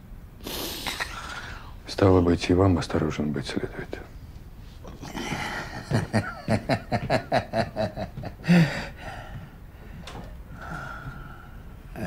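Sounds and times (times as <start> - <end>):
man laughing: 5.0 - 8.8.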